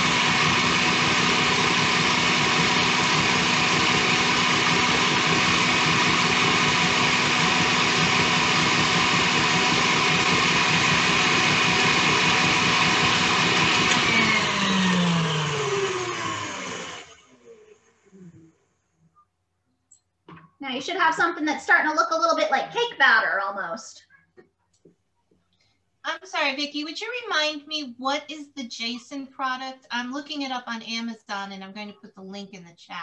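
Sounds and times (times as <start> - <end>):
electric mixer running: 0.0 - 18.4.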